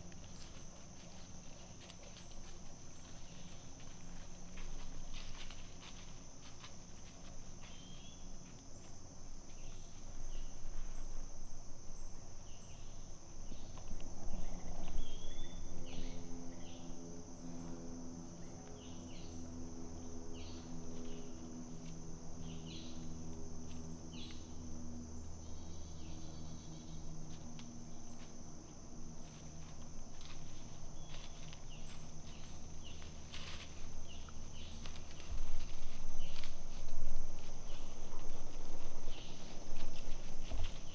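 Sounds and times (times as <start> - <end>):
high-pitched insect chorus: 0.0 - 40.9
low steady hum: 0.0 - 40.9
deer walking through leaf litter: 0.2 - 8.9, 29.2 - 40.9.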